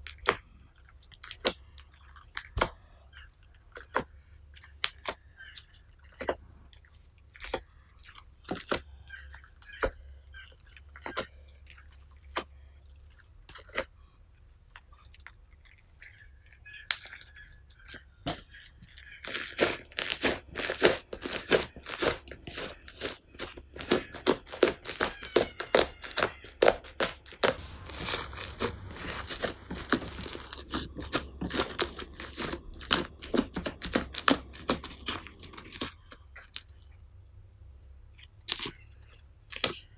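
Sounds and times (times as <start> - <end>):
slime bubbles crackling and popping: 19.1 - 36.8.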